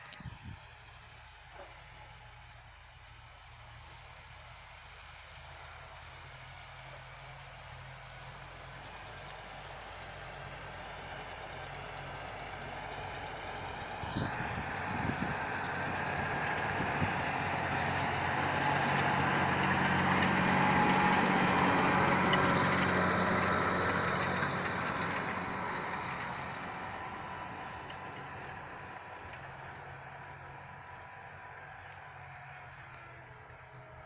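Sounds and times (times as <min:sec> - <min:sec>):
tractor engine under load: 0:00.0 - 0:34.0
harrow discs rattling through soil: 0:08.7 - 0:34.0.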